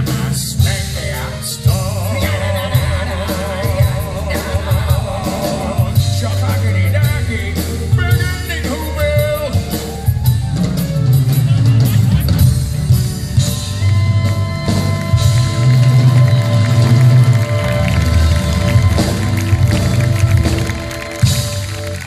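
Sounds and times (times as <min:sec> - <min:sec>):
voices singing: 0:00.0 - 0:07.5
held keyboard chords: 0:00.0 - 0:22.0
live band music: 0:00.0 - 0:22.0.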